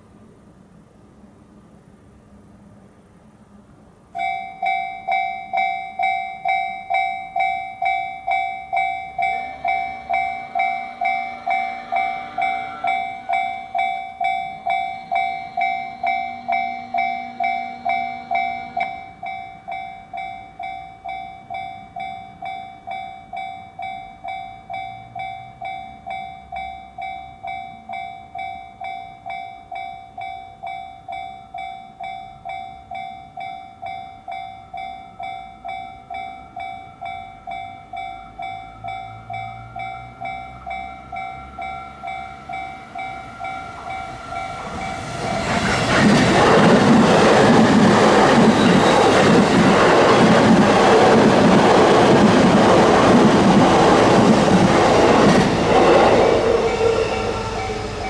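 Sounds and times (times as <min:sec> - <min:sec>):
train passing with rumbling rush: 0:00.0 - 0:58.0
level crossing bell ringing: 0:04.2 - 0:45.1.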